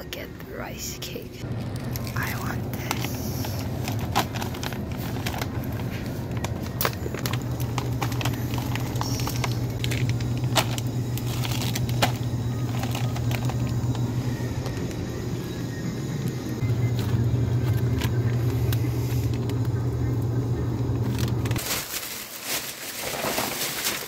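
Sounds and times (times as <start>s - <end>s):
steady low hum: 0.0s - 21.7s
plastic packets crinkling: 1.4s - 15.3s, 20.6s - 24.0s.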